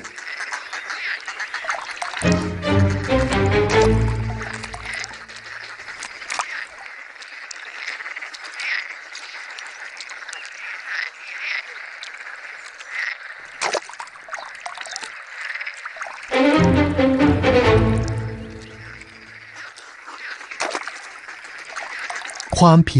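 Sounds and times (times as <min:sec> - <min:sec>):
frogs croaking: 0:00.0 - 0:02.2, 0:04.6 - 0:16.4, 0:18.0 - 0:22.6.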